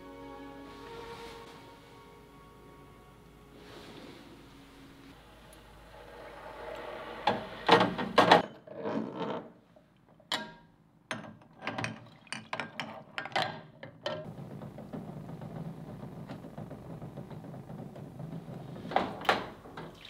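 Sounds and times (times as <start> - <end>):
water sloshing: 19.7 - 20.0.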